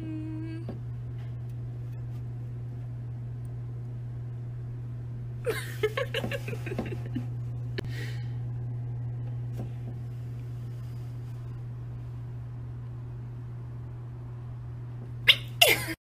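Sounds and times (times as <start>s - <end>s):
steady low hum: 0.0s - 16.0s
person stifled laughter: 5.5s - 7.3s.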